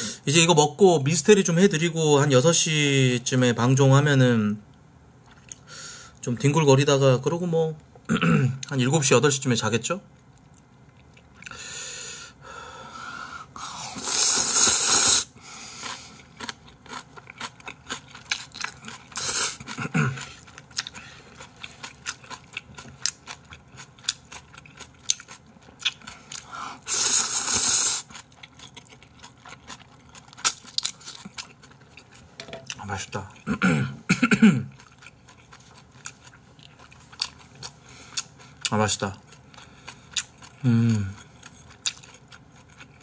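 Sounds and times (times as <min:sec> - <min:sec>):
slurping noodles: 0:13.6 - 0:16.1, 0:26.8 - 0:28.1
wet chewing: 0:15.8 - 0:32.9, 0:34.7 - 0:43.0.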